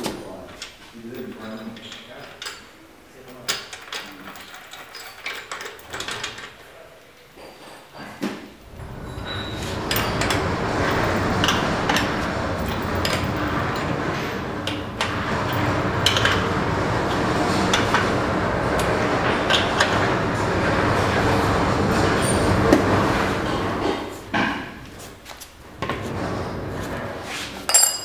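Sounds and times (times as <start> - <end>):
machine running noise: 8.6 - 27.4.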